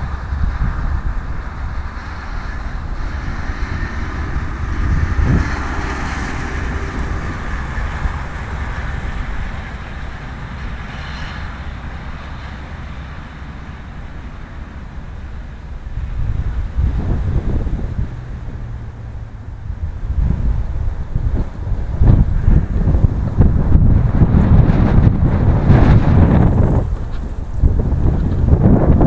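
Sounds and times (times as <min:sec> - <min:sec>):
wind buffeting microphone: 0:00.0 - 0:29.0
wind gusting through trees: 0:00.0 - 0:29.0.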